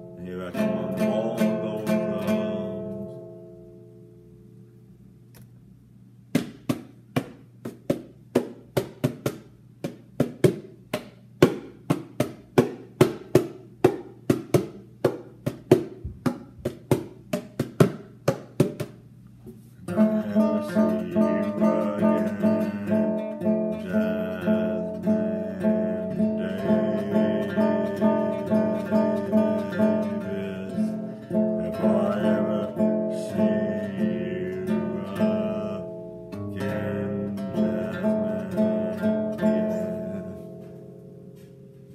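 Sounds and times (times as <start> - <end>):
acoustic guitar strumming: 0.0 - 4.6, 19.8 - 41.9
acoustic guitar chords: 0.0 - 4.8, 19.8 - 41.9.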